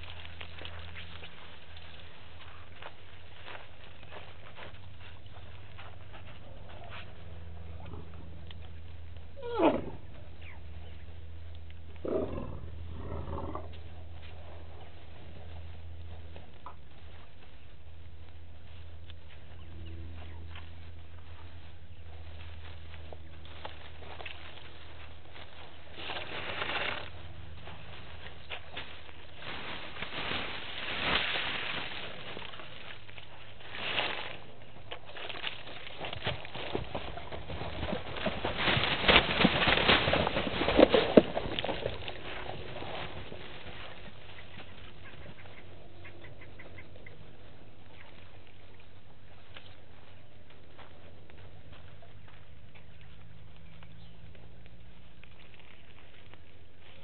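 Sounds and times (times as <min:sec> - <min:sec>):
elephant footfalls on dry grass: 0:00.0 - 0:57.0
steady low hum: 0:00.0 - 0:57.0
elephants calling: 0:09.3 - 0:11.0.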